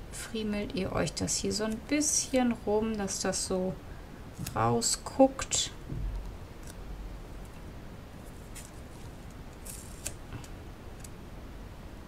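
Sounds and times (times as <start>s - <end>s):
low steady hum: 0.0s - 12.0s
paper and tape rustling: 8.2s - 11.1s.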